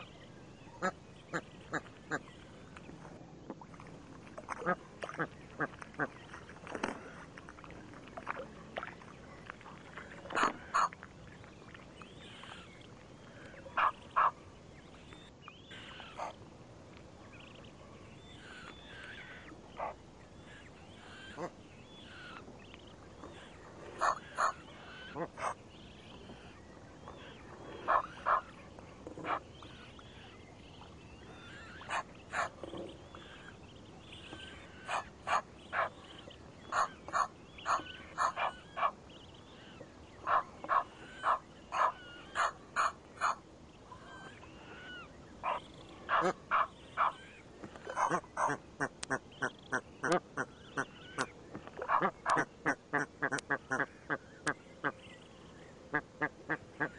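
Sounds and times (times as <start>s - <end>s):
geese calling: 10.3s - 11.0s, 23.3s - 28.5s, 34.1s - 36.0s, 36.6s - 39.0s, 39.7s - 43.4s, 44.0s - 54.6s.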